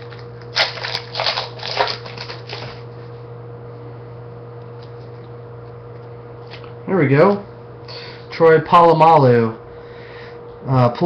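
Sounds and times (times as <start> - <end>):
wrapper tearing and crinkling: 0.0 - 2.8.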